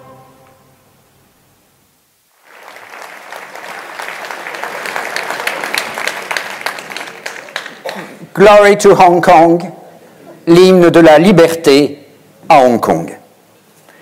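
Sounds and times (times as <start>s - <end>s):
brass music: 0.0s - 1.0s
audience applause: 2.4s - 8.2s.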